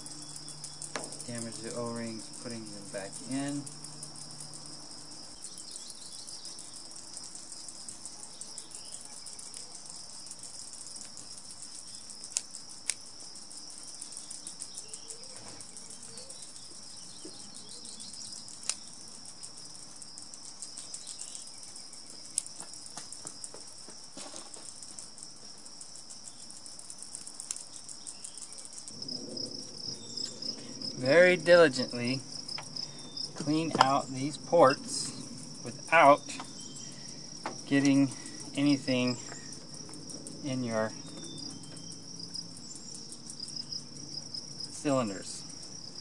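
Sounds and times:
insects chirring: 0.0s - 46.0s.

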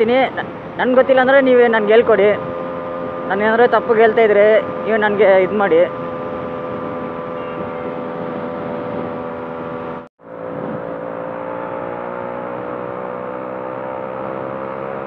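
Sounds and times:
two-stroke motorcycle engine: 0.0s - 15.0s
wind and road noise: 0.0s - 15.0s.

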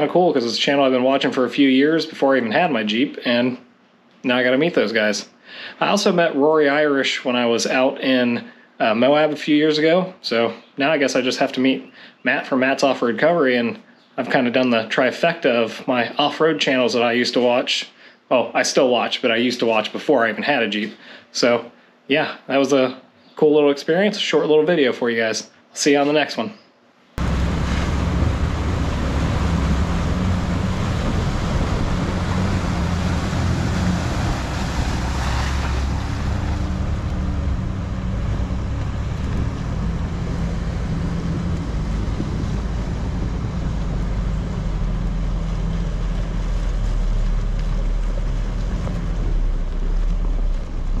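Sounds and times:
car engine running: 27.2s - 51.0s
tyres on gravel: 27.2s - 51.0s
water rushing and splashing: 27.2s - 51.0s
wind buffeting microphone: 27.2s - 51.0s.

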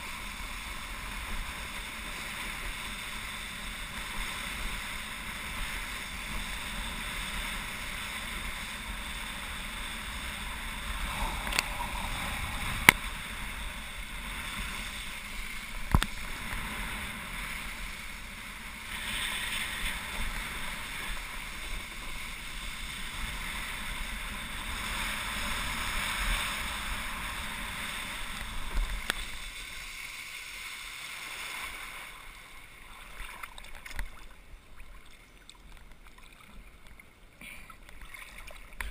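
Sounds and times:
wind on camera: 0.0s - 29.8s
water spray rushing: 9.5s - 24.0s.

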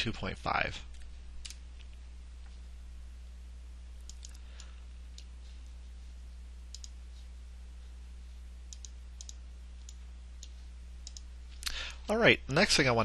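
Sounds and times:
low electrical hum: 0.0s - 13.0s
computer mouse clicking: 4.0s - 5.3s, 6.7s - 7.0s, 8.7s - 11.7s.

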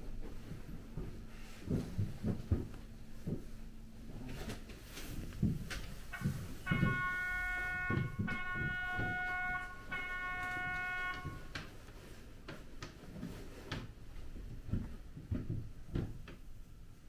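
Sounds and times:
low thuds: 5.4s - 11.5s
electric horn blasts: 6.1s - 11.8s.

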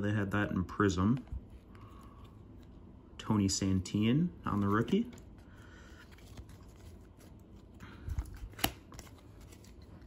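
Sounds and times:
cards sliding and rubbing: 4.5s - 10.0s.

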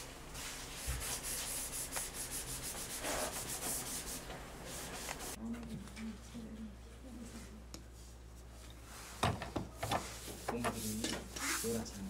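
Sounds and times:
rubbing on a hard surface: 0.4s - 5.4s, 10.0s - 11.9s.

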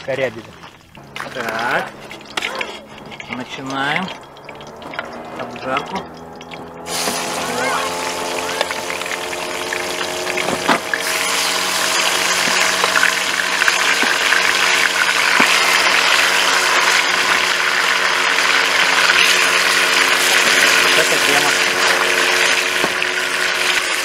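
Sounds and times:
meat sizzling in hot oil: 0.9s - 24.0s.

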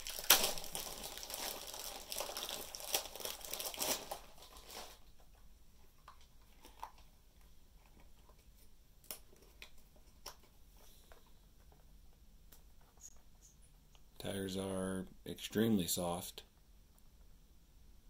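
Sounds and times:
plastic packaging crinkling: 0.0s - 5.4s.

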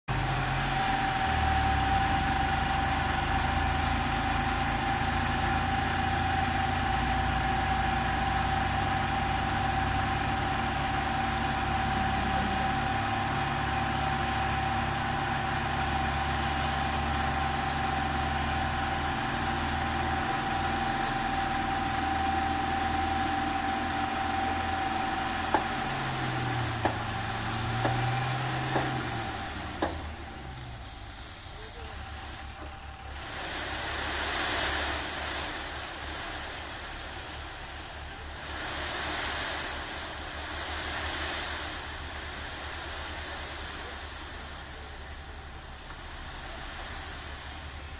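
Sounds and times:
diesel truck engine running: 0.0s - 47.9s
hydraulic hoist whining: 0.1s - 36.1s
sharp knocks: 27.8s - 29.0s.

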